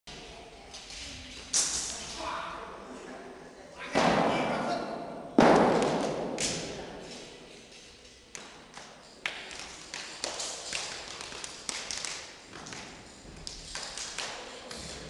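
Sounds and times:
heavy thump echoing in hall: 0:03.9 - 0:07.4.

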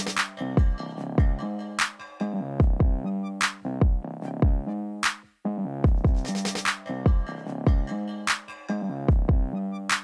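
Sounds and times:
snare and hi-hat strikes: 0:00.0 - 0:00.4, 0:05.0 - 0:05.3, 0:05.9 - 0:07.0
kick drum hits: 0:02.6 - 0:03.0, 0:05.9 - 0:06.3, 0:09.1 - 0:09.5.

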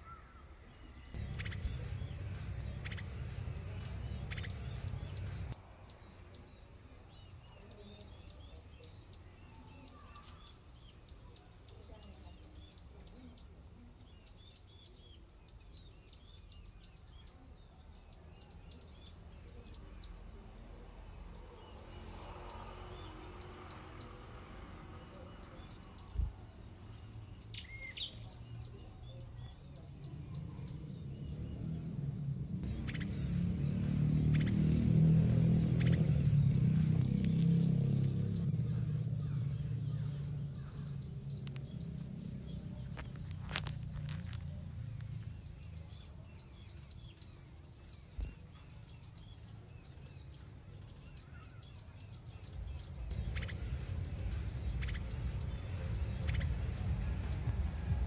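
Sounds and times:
high bird chirps: 0:00.0 - 0:06.5, 0:25.0 - 0:57.5
low rumble: 0:01.2 - 0:05.6, 0:52.8 - 0:58.0.

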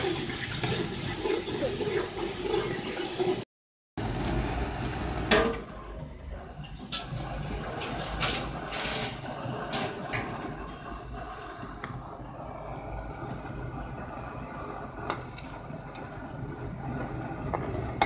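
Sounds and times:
masala sizzling in pot: 0:00.0 - 0:03.4, 0:06.7 - 0:12.2, 0:13.0 - 0:18.0
metal spoon stirring and scraping: 0:15.1 - 0:15.7.

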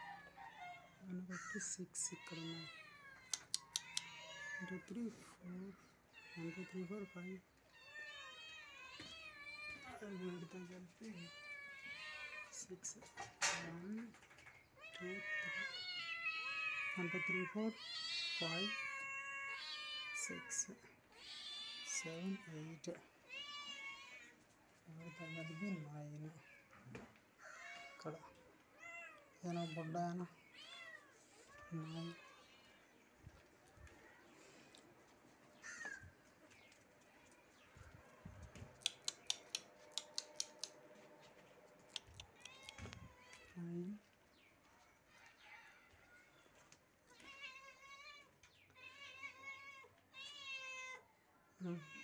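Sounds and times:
sharp clicks: 0:03.3 - 0:04.1, 0:38.6 - 0:40.8.

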